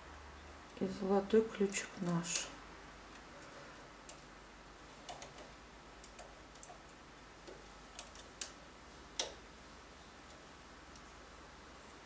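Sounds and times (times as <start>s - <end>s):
knitting machine needles clicking: 0.6s - 8.6s, 9.2s - 9.4s.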